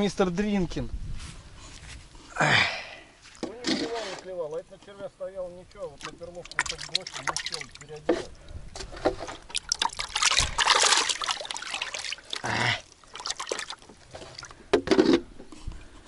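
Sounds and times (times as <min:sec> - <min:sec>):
water splashing and trickling: 0:05.3 - 0:16.0
knocks and handling sounds: 0:08.0 - 0:11.2, 0:13.8 - 0:15.6.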